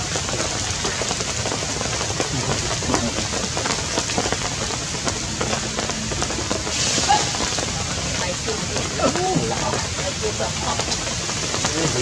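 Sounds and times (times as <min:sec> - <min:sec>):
raindrops ticking on surfaces: 0:00.0 - 0:12.0
steady rain: 0:00.0 - 0:12.0.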